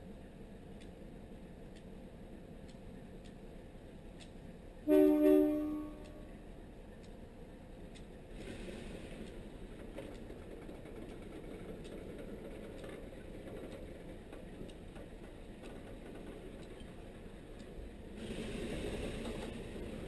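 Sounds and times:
locomotive air horn blasts: 4.9s - 6.4s.

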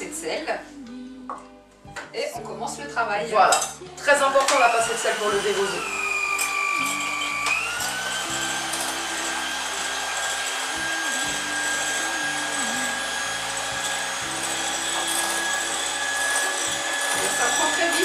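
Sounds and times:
background music: 0.0s - 18.0s
electric hand mixer whining: 4.0s - 18.0s.

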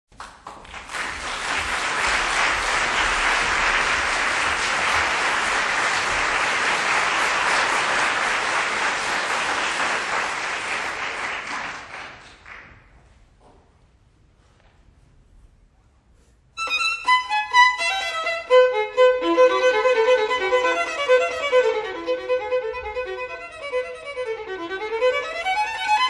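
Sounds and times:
audience applauding: 0.1s - 13.0s.

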